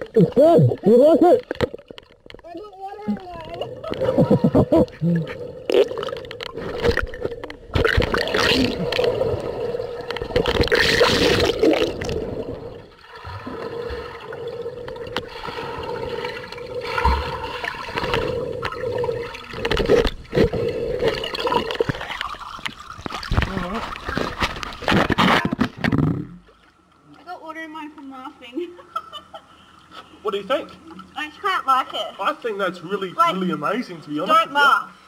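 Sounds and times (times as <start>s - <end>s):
water sloshing underwater: 0.0s - 27.2s.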